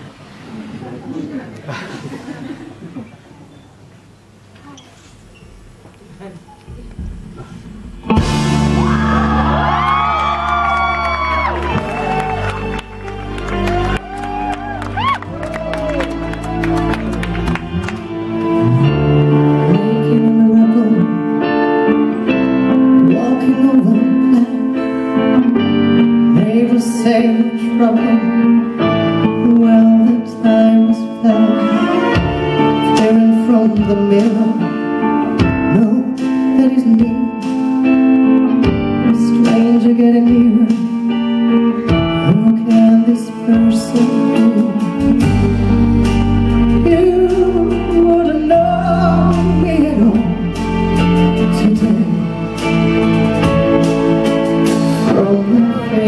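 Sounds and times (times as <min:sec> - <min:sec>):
instrumental backing: 0:04.5 - 0:56.0
deep bass: 0:06.8 - 0:20.5
person singing into a microphone: 0:19.3 - 0:45.7, 0:46.5 - 0:52.6, 0:54.9 - 0:56.0.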